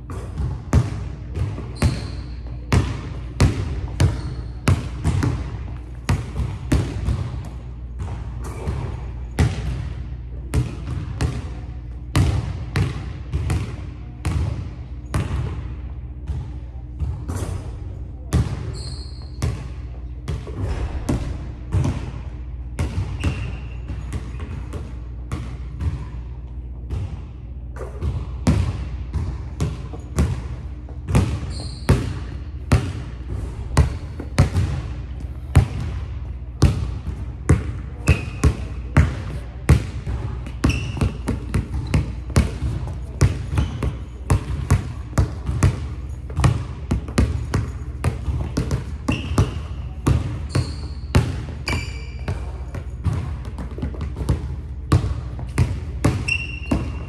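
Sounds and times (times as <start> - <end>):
basketball bouncing on wooden floor: 0.1 - 9.9, 10.5 - 15.6, 28.0 - 57.0
sneaker squeaks: 1.4 - 9.6, 16.2 - 20.9, 22.8 - 24.8, 29.6 - 35.9, 37.5 - 57.0.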